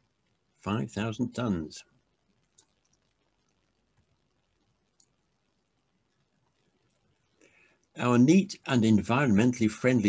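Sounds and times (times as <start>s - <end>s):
faint click: 4.9s - 5.2s.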